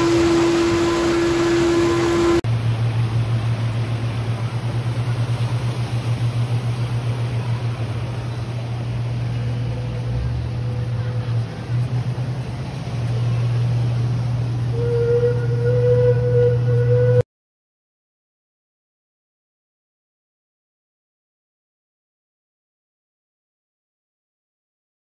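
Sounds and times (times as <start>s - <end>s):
boat engine hum: 0.0s - 17.2s.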